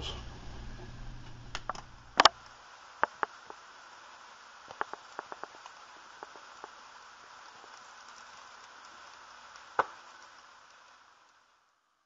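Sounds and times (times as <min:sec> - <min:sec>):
burner flame hissing: 0:00.0 - 0:11.8
faint ticks: 0:04.7 - 0:11.4.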